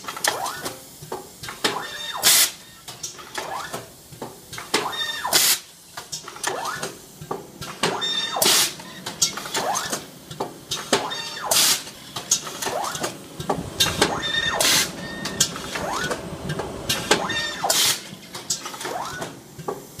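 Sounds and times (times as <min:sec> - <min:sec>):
mechanical clatter: 0:04.5 - 0:20.0.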